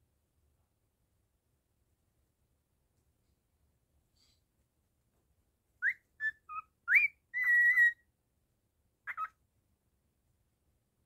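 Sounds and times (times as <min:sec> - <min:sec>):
cockatiel whistling a tune: 0:05.8 - 0:08.0.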